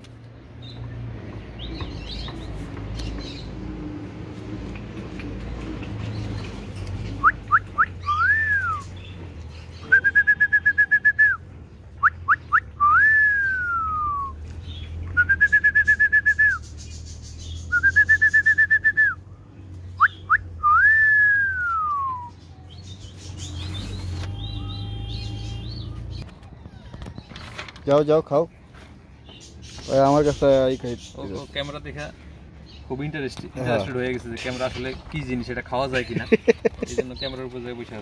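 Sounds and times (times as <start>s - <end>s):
whistling with rising slides: 7.2s - 8.9s, 12.3s - 14.4s, 17.7s - 19.2s, 20.0s - 22.4s.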